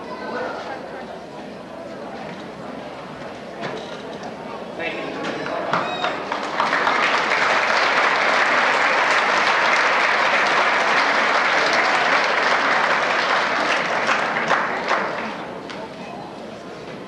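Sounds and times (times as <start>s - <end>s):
audience applauding: 5.9s - 15.5s.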